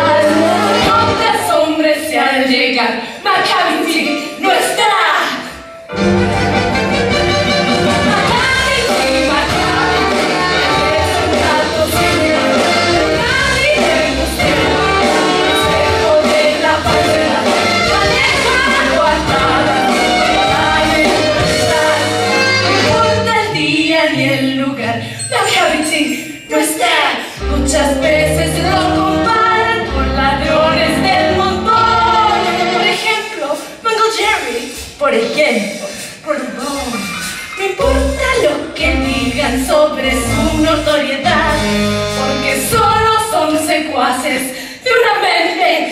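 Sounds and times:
live band with bass line: 0.0 - 1.5, 5.9 - 23.5, 27.4 - 33.2, 36.6 - 43.2
instrumental accompaniment: 5.4 - 24.7, 26.1 - 33.2, 37.8 - 43.4
voices singing: 7.8 - 25.0, 26.5 - 33.6, 35.4 - 45.9.

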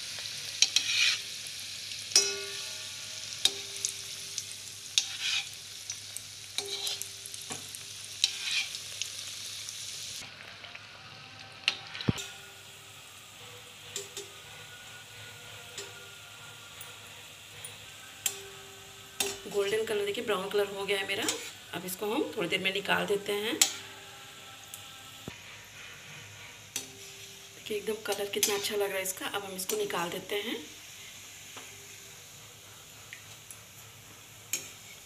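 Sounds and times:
deep-frying sizzle: 0.0 - 35.0
metal spoon clinking on pan: 2.1 - 4.0, 6.6 - 7.1, 19.2 - 19.5, 34.5 - 34.8.

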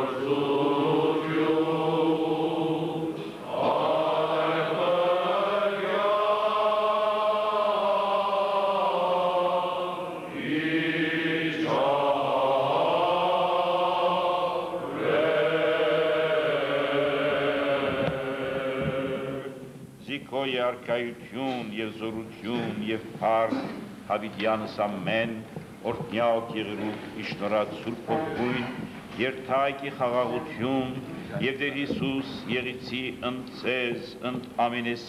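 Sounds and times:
men chanting a hymn: 0.0 - 35.0.

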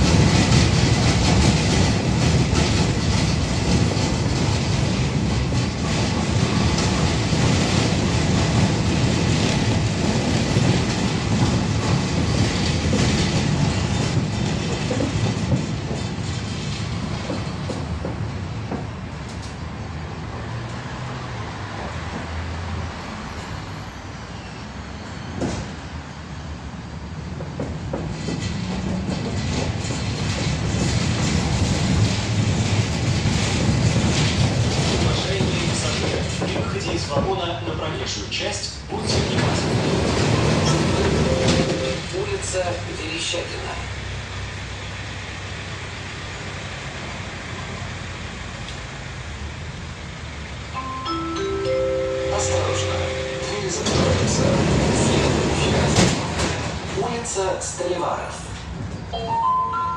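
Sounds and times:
street traffic: 0.0 - 59.9
tram wheels rumbling on rails: 0.0 - 59.9.

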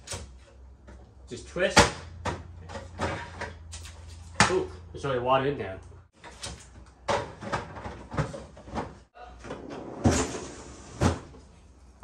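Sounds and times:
freezer drawer opening: 9.5 - 11.4.

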